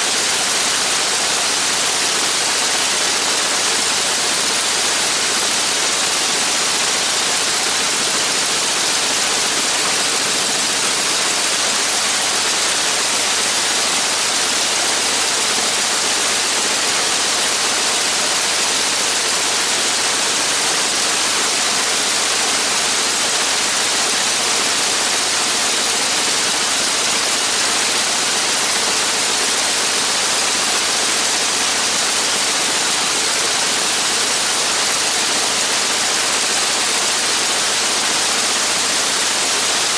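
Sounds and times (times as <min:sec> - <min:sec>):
aircraft engine running: 0:00.0 - 0:21.2.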